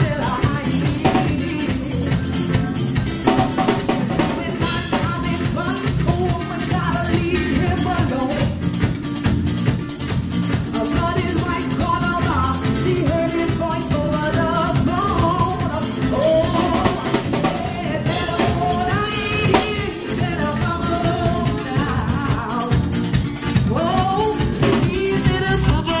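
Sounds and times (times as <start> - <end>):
bass guitar: 0.0 - 26.0
drum kit beat: 0.0 - 26.0
woman singing lead: 0.0 - 26.0
backing singers: 12.6 - 22.8.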